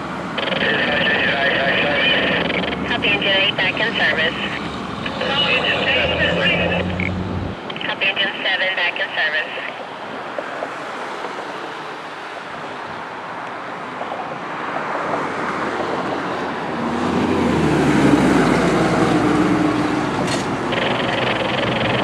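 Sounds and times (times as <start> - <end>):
roadside traffic noise: 0.0 - 22.0
fire engine driving past: 15.8 - 22.0.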